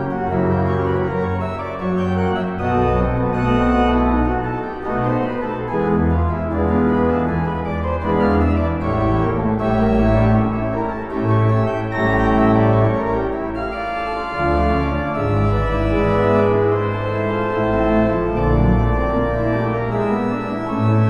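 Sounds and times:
pipe organ playing chords: 0.0 - 21.0.

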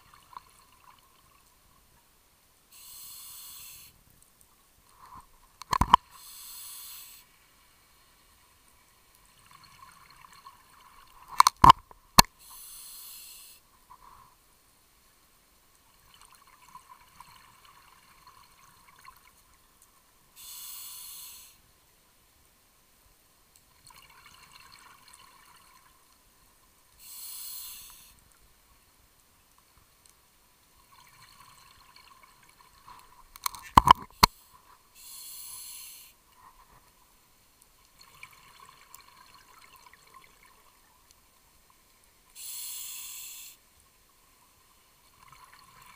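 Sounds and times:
crackling bubbles: 0.0 - 2.0, 2.8 - 7.2, 8.7 - 14.4, 23.6 - 26.2, 29.4 - 37.0, 37.6 - 43.6, 45.0 - 45.9
scuba regulator breathing: 2.8 - 4.0, 6.2 - 7.3, 12.4 - 13.6, 20.4 - 21.6, 27.0 - 28.2, 34.2 - 36.2, 42.4 - 43.6.

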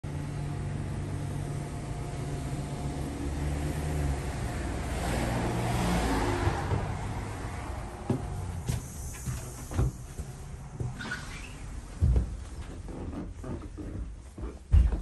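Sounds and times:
vehicle engine humming: 0.1 - 14.0
car passing by: 2.1 - 10.9.

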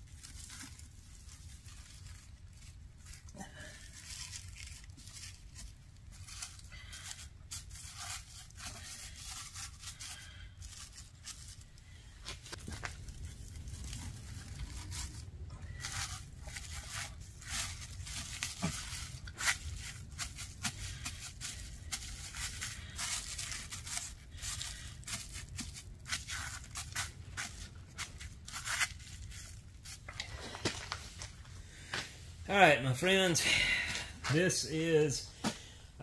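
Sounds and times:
low steady hum: 0.0 - 36.0
packing tape ripping: 12.2 - 30.1.

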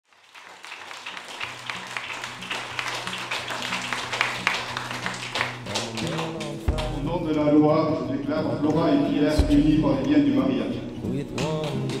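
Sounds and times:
background music with soft pulse: 5.6 - 12.0.

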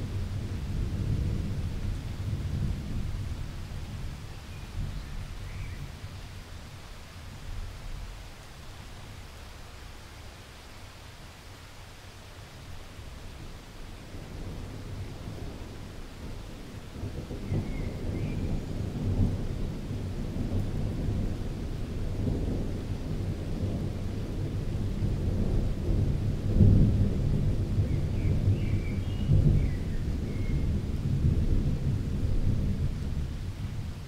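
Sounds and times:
deep roll of thunder: 14.2 - 34.0.

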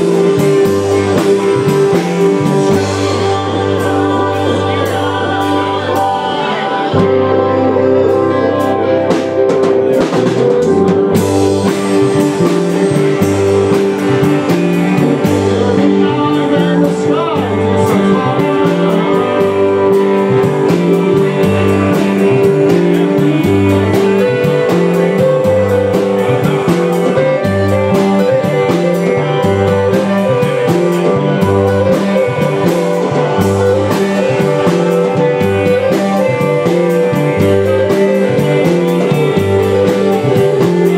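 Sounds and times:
bass guitar line: 0.0 - 40.9
drum kit: 0.0 - 40.9
electric guitars: 0.0 - 40.9
man singing into microphone: 2.7 - 9.1, 15.2 - 28.2.

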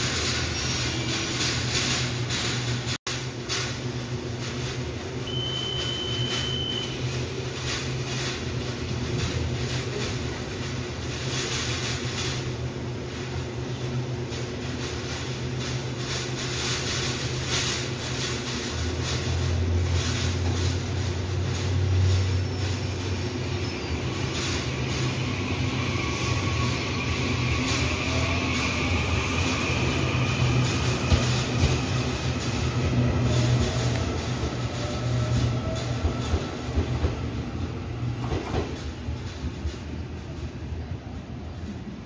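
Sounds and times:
deep train drone: 0.0 - 42.0
train electrical hum: 0.0 - 42.0
door closing beep: 5.3 - 7.0.

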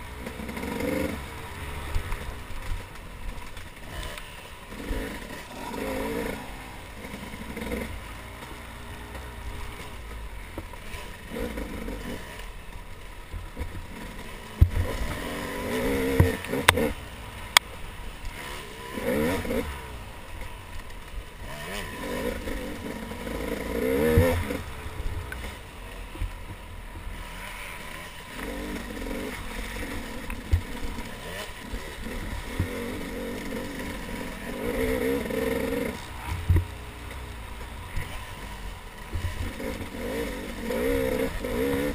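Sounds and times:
dirt bike engine revving: 0.0 - 41.9
bike clattering over rough ground: 0.1 - 26.6.

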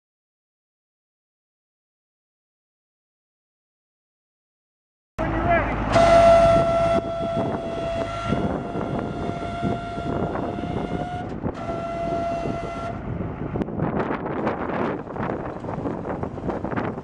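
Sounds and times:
truck horn blast: 5.2 - 13.1
low rumble: 5.2 - 17.0.

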